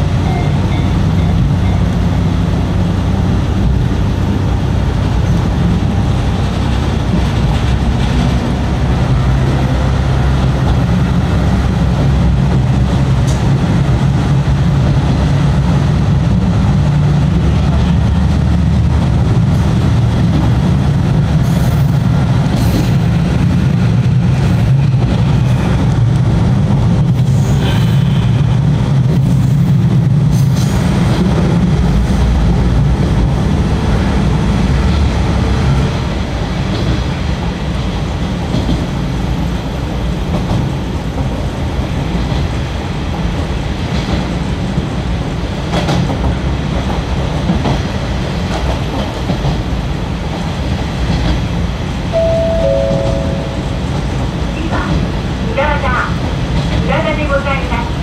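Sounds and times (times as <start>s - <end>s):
wheels rumbling on rail: 0.0s - 58.0s
diesel engine drone: 52.1s - 55.2s.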